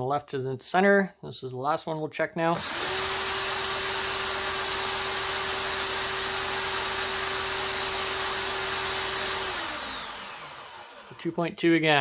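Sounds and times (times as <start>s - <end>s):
cordless drill whining: 2.6s - 11.2s.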